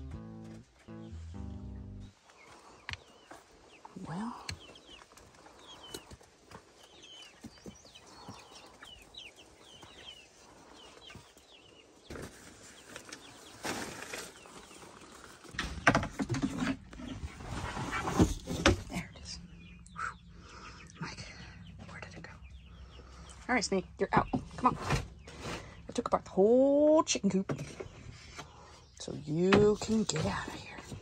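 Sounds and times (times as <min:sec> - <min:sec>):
chickens cheeping: 0:02.2 - 0:15.4, 0:19.2 - 0:25.9
rustling and scraping: 0:12.0 - 0:19.3, 0:24.4 - 0:26.1, 0:29.4 - 0:31.0.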